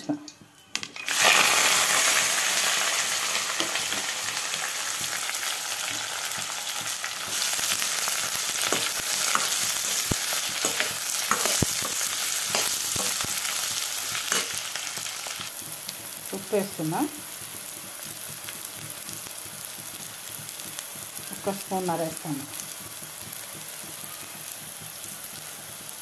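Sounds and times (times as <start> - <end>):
onions sizzling in hot oil: 0.7 - 26.0
spoon scraping a pan: 7.2 - 13.6, 14.3 - 14.6.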